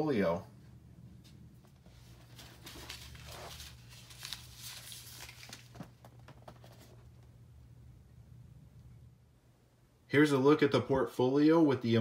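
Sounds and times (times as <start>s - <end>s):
paper rustling and scraping: 1.7s - 7.2s.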